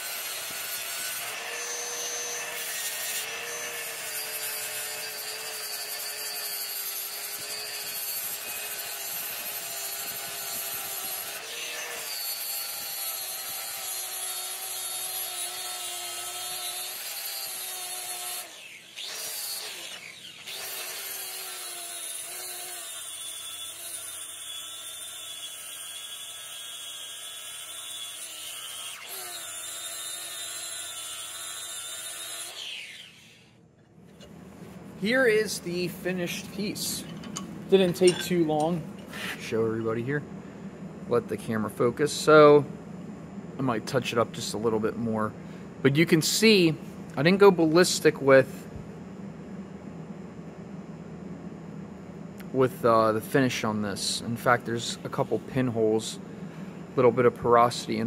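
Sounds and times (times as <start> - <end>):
angle grinder motor whine: 0.0 - 26.4, 27.0 - 33.6.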